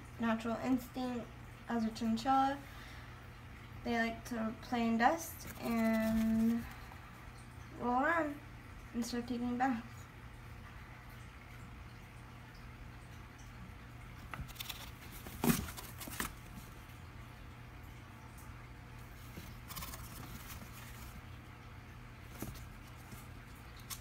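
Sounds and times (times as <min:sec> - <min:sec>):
scratchy rustles: 0:05.4 - 0:06.8, 0:14.4 - 0:16.7, 0:19.2 - 0:21.3.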